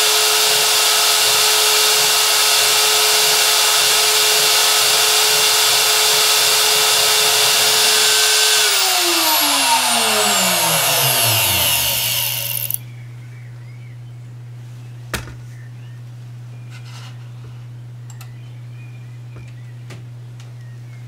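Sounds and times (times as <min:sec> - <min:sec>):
spindle motor whining: 0:00.0 - 0:12.8.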